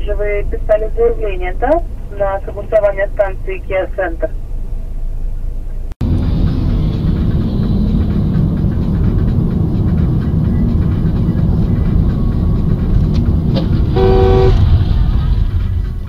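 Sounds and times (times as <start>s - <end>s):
car engine and tyres rumbling: 0.0s - 16.0s
two-tone car horn: 13.9s - 14.8s.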